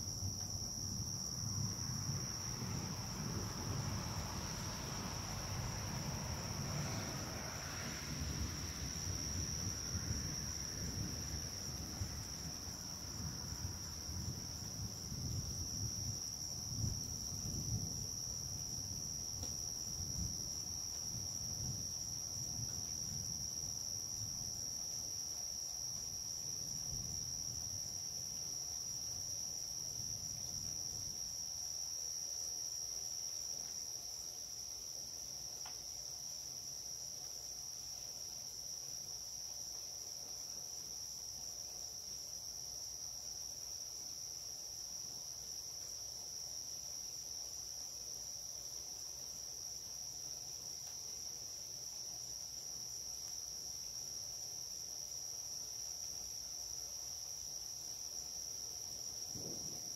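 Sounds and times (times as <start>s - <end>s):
night insects chorus: 0.0s - 59.9s.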